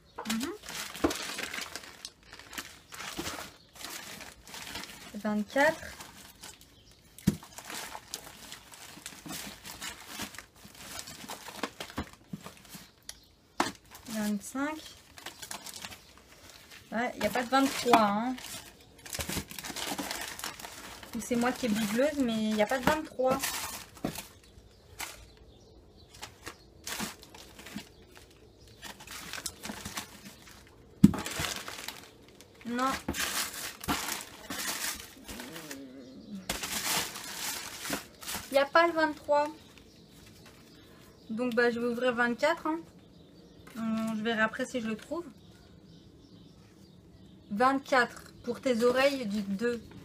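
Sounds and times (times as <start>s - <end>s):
gift packaging rustling: 0.3s - 25.4s, 26.1s - 40.7s.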